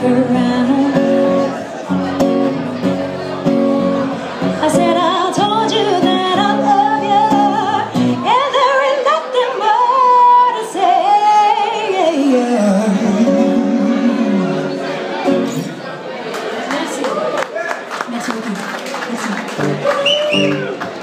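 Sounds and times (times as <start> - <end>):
woman singing with vibrato: 0.0 - 1.6, 4.5 - 14.8
strummed acoustic guitar: 0.0 - 8.8, 12.4 - 15.8.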